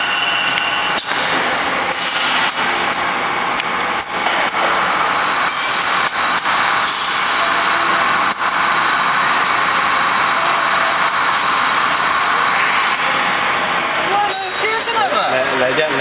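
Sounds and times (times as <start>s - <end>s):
workshop machinery noise: 0.0s - 16.0s
metallic clicks and clinks: 8.1s - 8.6s.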